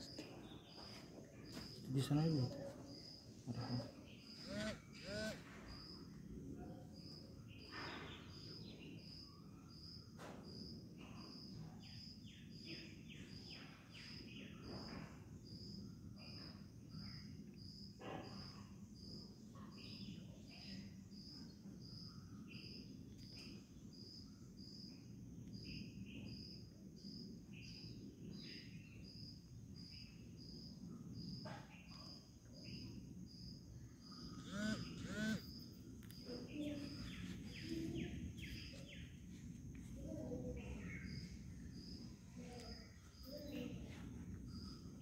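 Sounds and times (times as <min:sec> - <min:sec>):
cricket chirping: 0:00.0 - 0:45.0.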